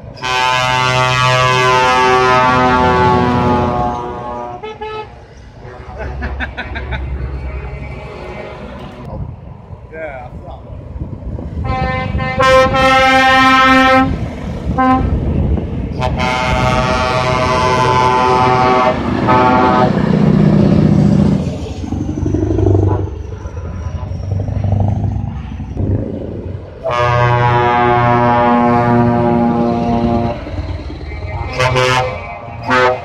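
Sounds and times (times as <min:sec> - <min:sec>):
diesel truck engines passing: 0:00.0 - 0:33.0
lorry air horn blasts: 0:00.2 - 0:05.1, 0:11.6 - 0:14.2, 0:16.0 - 0:20.0, 0:26.8 - 0:30.4, 0:31.5 - 0:33.0.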